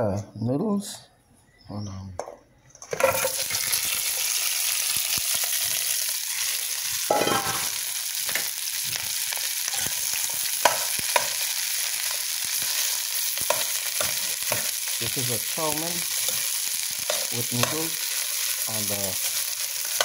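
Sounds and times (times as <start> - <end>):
metal utensil scraping a pan: 2.9 - 4.0, 7.1 - 8.5
food sizzling in a pot: 2.9 - 20.0.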